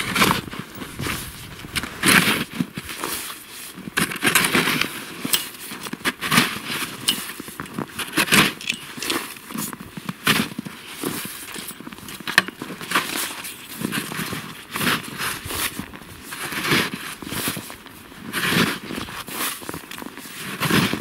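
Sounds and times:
plastic shovel crunching into snow: 0.0 - 21.0.

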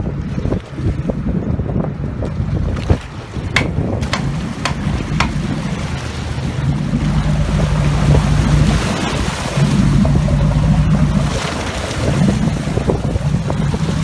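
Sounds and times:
water rushing along hull: 0.0 - 14.0
wind buffeting microphone: 0.0 - 14.0
boat engine droning: 3.2 - 14.0.

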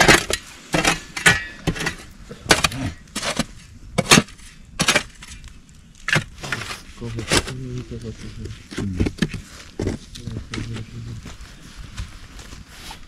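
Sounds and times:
shovel scraping stony soil: 0.0 - 13.0.

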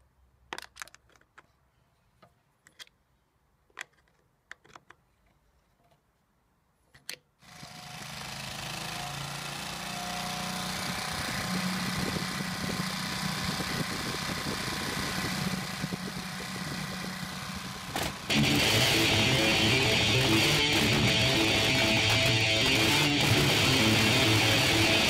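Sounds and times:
generator engine running: 7.6 - 25.0
music: 18.3 - 25.0.

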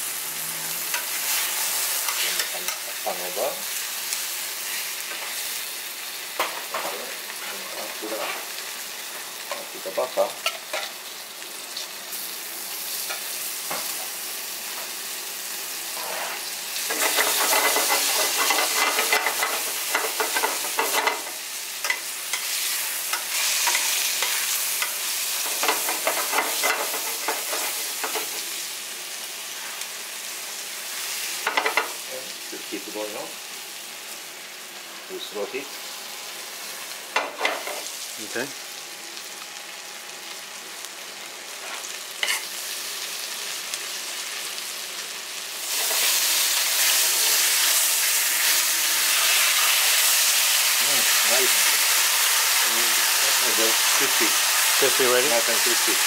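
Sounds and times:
chicken sizzling in oil: 0.0 - 56.0.

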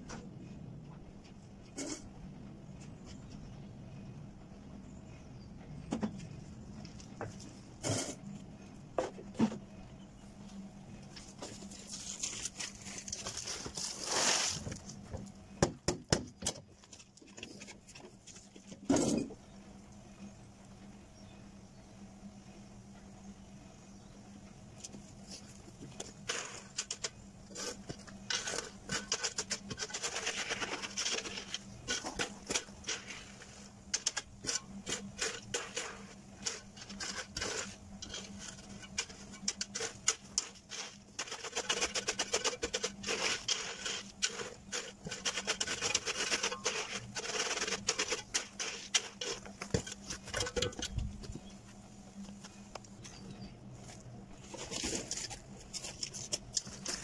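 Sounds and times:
spade scraping through gravel: 11.7 - 15.0, 26.0 - 51.5, 54.3 - 57.0.

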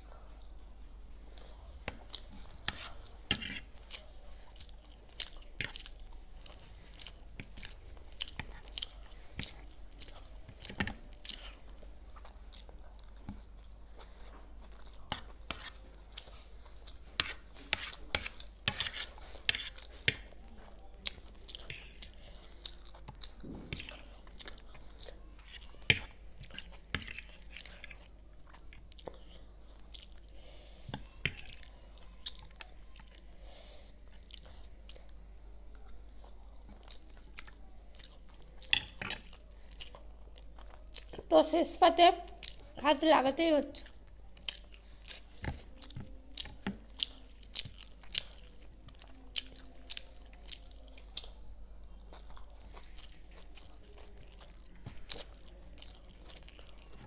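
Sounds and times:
wet chewing: 1.3 - 20.4, 34.0 - 41.3, 42.3 - 42.8, 43.8 - 57.0.

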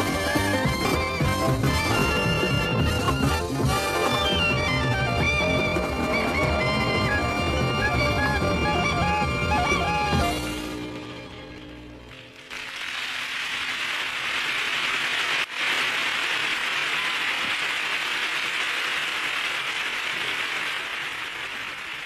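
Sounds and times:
band playing: 0.0 - 12.0
audience applause: 11.9 - 22.0.

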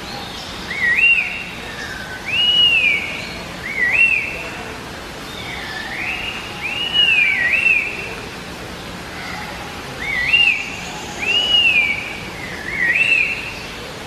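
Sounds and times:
bird whistled song: 0.4 - 4.4, 5.3 - 8.1, 10.0 - 13.7.

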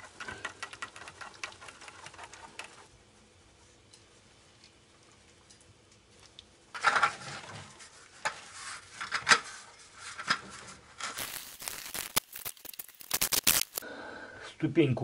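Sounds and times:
sharp clicks and scrapes: 0.0 - 2.9, 11.0 - 13.8.

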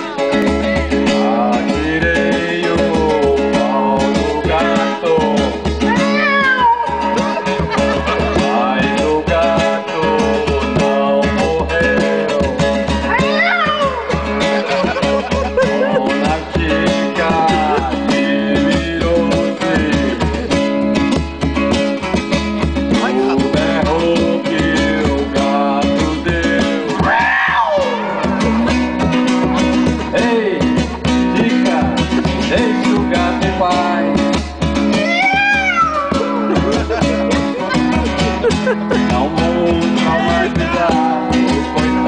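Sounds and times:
guitar and pulsing bass beat: 0.0 - 42.0
man's voice through microphone: 22.9 - 26.3, 38.8 - 42.0.

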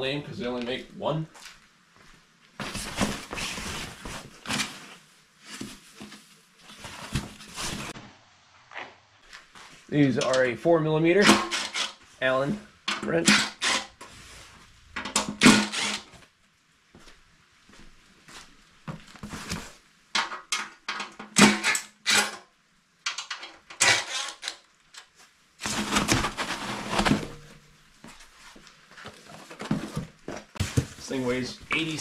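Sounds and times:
foam packing rustling: 2.6 - 8.0, 25.6 - 32.0
cordless drill bursts: 15.4 - 16.1
bolts and metal clinking: 23.0 - 25.1.

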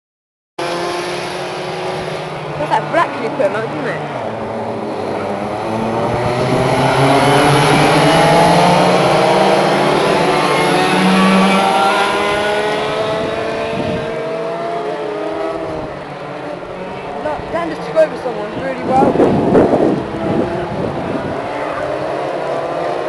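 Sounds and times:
kart engines accelerating: 0.6 - 23.0.

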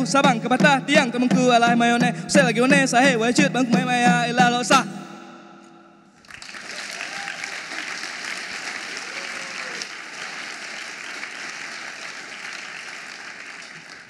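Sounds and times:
audience applauding: 6.2 - 14.0.

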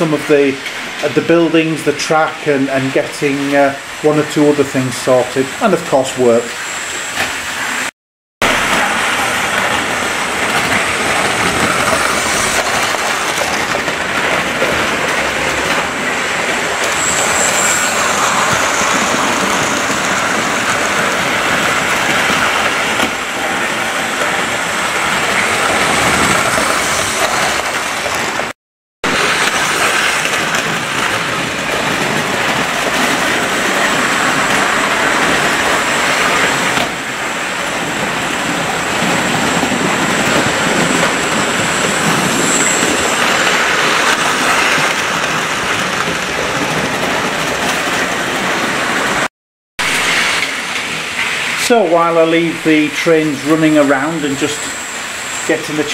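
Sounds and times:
model train motors whirring on track: 8.7 - 28.5, 52.6 - 55.9.

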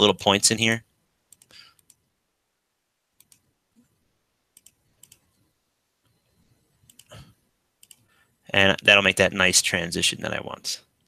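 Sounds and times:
faint computer mouse clicks: 1.3 - 2.0, 3.2 - 3.4, 4.6 - 5.3, 6.8 - 7.1, 7.8 - 8.1.

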